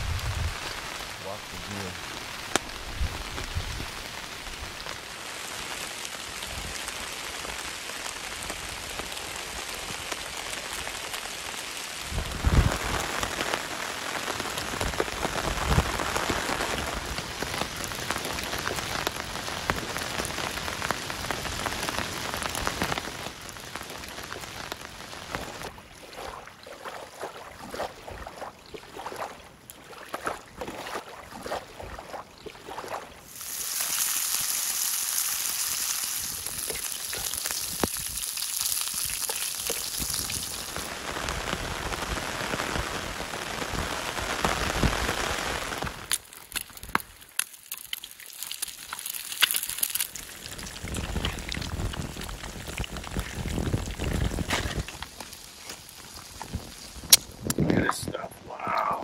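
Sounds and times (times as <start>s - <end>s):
rain falling: 0.0s - 26.6s, 33.2s - 59.0s
water dripping: 24.1s - 40.8s, 46.0s - 57.6s.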